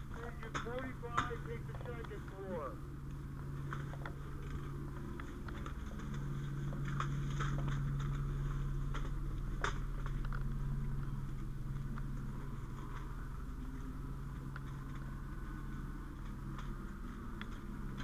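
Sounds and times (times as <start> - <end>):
low machinery hum: 0.0 - 18.0.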